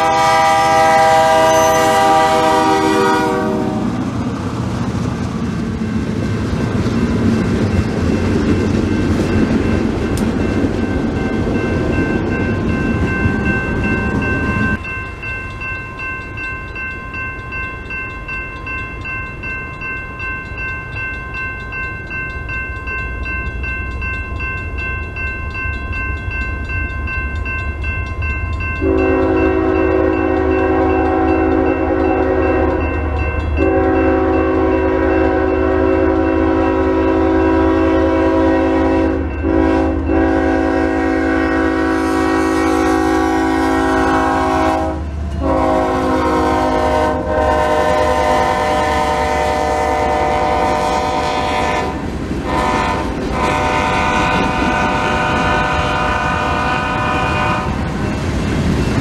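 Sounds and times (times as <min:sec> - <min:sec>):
crossing warning bell ringing: 0:00.0 - 0:04.0, 0:05.8 - 0:59.0
locomotive air horn: 0:00.0 - 0:04.0, 0:28.8 - 0:32.8, 0:33.6 - 0:57.8
diesel locomotive rumble: 0:00.0 - 0:17.3, 0:18.0 - 0:59.0.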